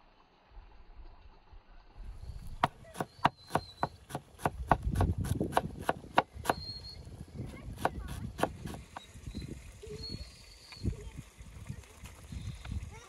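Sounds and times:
knife chopping on wooden board: 2.6 - 6.6, 7.7 - 9.0.

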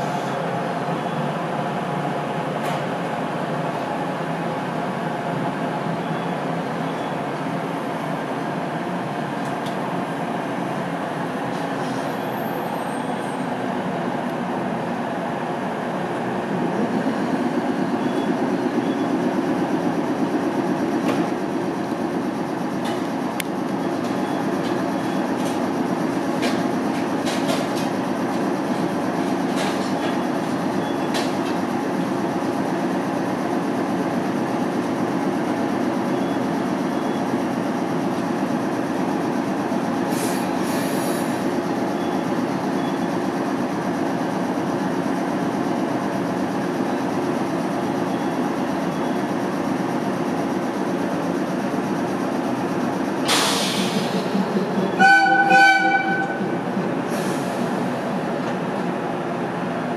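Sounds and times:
electric train equipment humming: 13.9 - 30.8, 42.5 - 59.9
brief air hiss: 40.1 - 41.4, 53.3 - 54.1.

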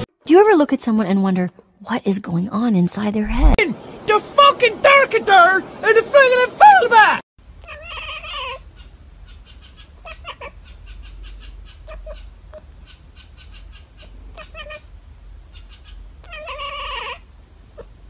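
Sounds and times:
cat meowing: 7.6 - 8.6, 10.0 - 10.6, 14.4 - 14.8, 16.2 - 17.2.

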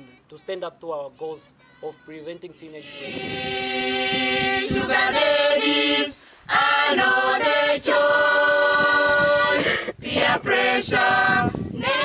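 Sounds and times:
group singing unaccompanied: 2.8 - 12.0.

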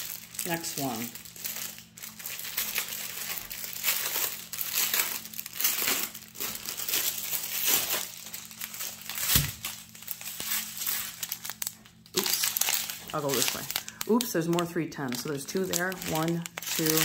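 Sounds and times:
plastic bags crinkling: 0.0 - 17.0.

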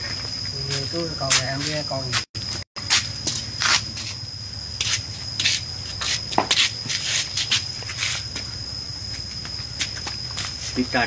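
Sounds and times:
scratchy handling noise: 4.8 - 8.3.

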